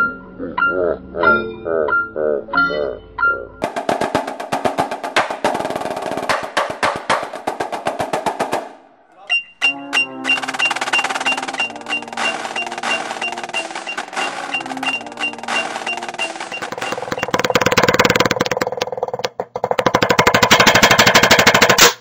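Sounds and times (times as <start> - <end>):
marching snare drumline: 3.6 - 8.8, 10.2 - 18.8, 19.4 - 22.0
drumsticks on a practice pad: 10.3 - 22.0.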